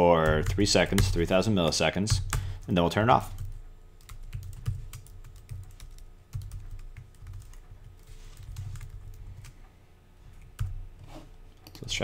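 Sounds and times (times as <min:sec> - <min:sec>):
computer keyboard typing: 0:00.2 - 0:09.6.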